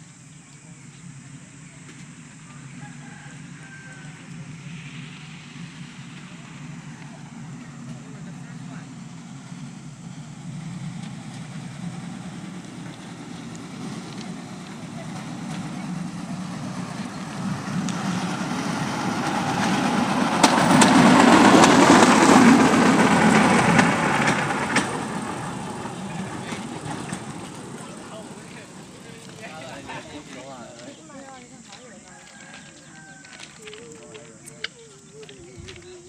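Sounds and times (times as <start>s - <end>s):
wheels clattering on track: 0.2s - 36.0s
small engine: 1.0s - 31.0s.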